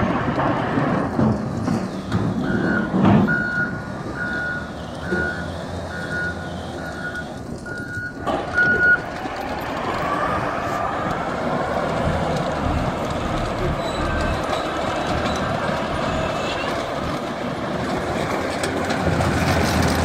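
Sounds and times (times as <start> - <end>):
diesel engine revving: 0.0 - 20.0
reversing alarm beeps: 2.0 - 9.0.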